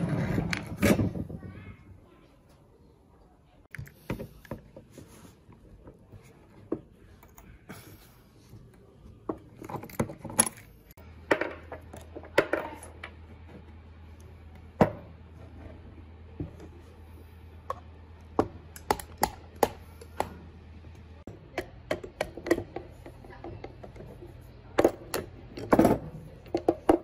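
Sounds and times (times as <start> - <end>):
metal parts clinking and knocking: 9.4 - 13.0.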